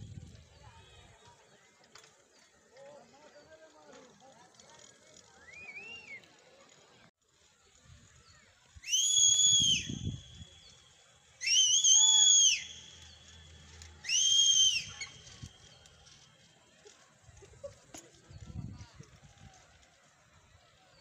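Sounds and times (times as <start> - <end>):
high-pitched whistles: 8.7 - 16.3.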